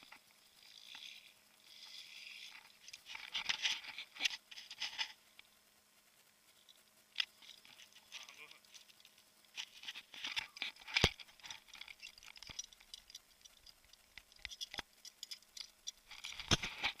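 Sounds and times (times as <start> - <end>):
camera handling rustle: 2.5 - 5.2, 7.2 - 13.2, 16.1 - 17.0.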